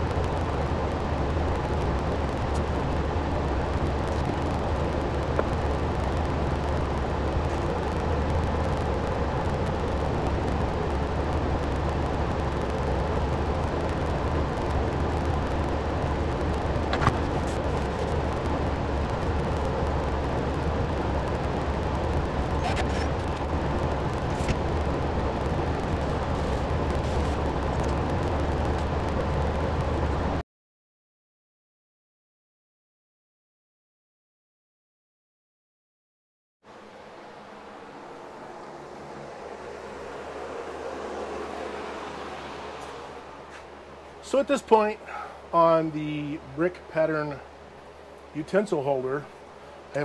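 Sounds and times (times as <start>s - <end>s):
shop machinery humming: 36.7s - 50.0s.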